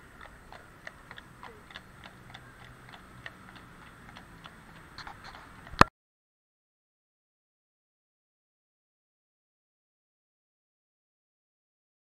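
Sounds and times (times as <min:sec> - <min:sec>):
horse hooves clip-clopping on asphalt: 0:00.0 - 0:05.9.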